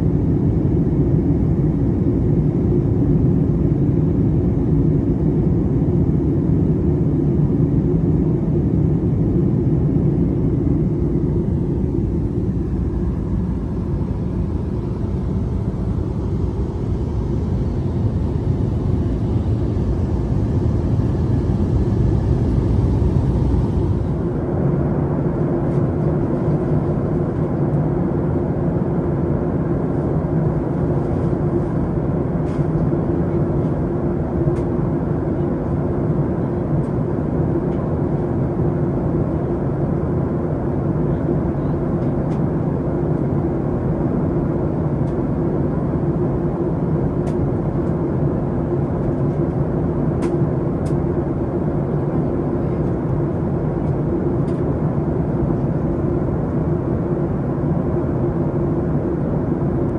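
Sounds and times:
low hum: 0:00.0 - 0:32.7
airplane cabin engine drone: 0:00.0 - 0:59.9.

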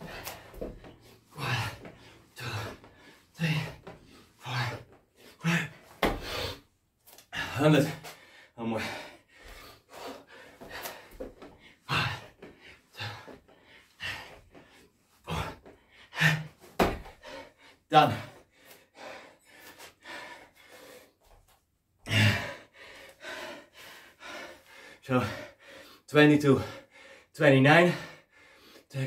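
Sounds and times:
man panting: 0:00.0 - 0:21.4, 0:22.0 - 0:29.0
man grunting: 0:01.4 - 0:01.8, 0:03.4 - 0:03.8, 0:05.4 - 0:05.8
thud on mat: 0:16.8 - 0:17.1.

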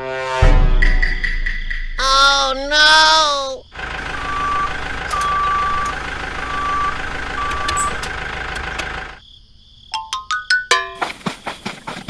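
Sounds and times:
engine rumble: 0:02.1 - 0:09.2
reversing alarm beeping: 0:03.1 - 0:09.2.

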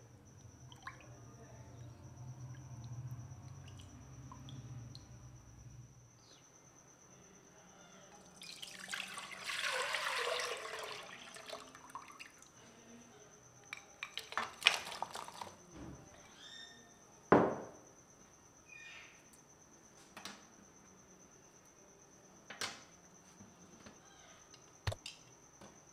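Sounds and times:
liquid pouring into metal pot: 0:08.4 - 0:12.3.

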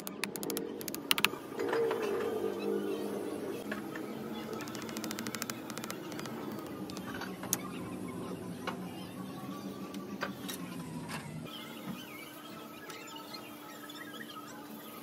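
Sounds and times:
sharp clicks: 0:00.0 - 0:01.4, 0:04.5 - 0:07.1.

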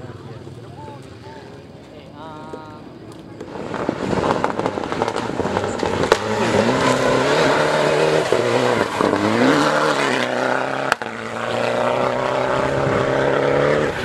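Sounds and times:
rally car engine revving: 0:03.3 - 0:14.0.

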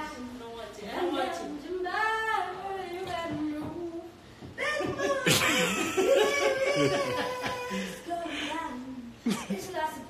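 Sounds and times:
people laughing: 0:04.6 - 0:08.0.

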